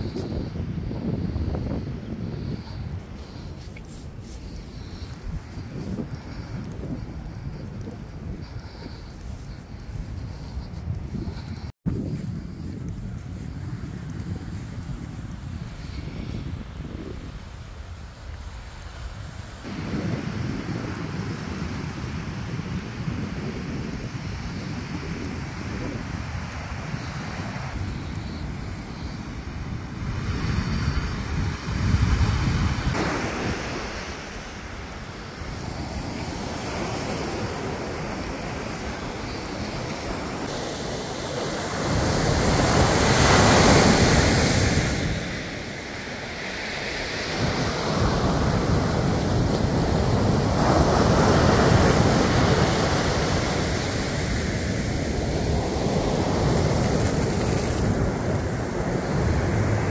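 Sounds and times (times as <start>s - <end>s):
wind buffeting microphone: 0.0s - 59.9s
ocean surf breaking: 32.7s - 59.9s.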